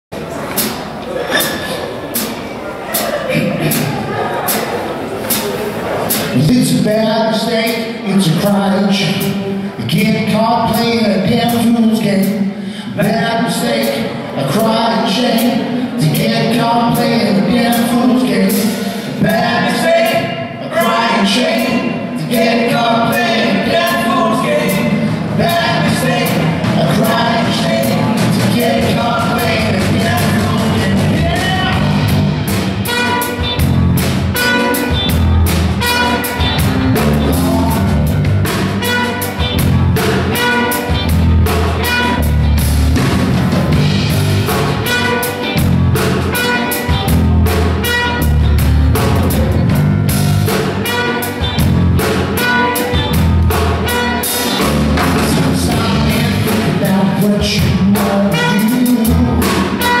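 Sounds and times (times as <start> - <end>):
live funk band playing: 0.2 - 60.0
trumpet: 29.4 - 49.6, 50.5 - 56.8, 58.0 - 60.0.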